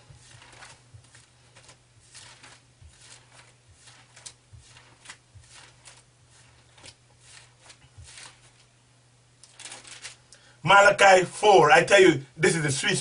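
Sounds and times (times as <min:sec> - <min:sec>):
paper pages rustling: 0:00.0 - 0:08.7, 0:09.4 - 0:10.2
faint low hum: 0:00.0 - 0:13.0.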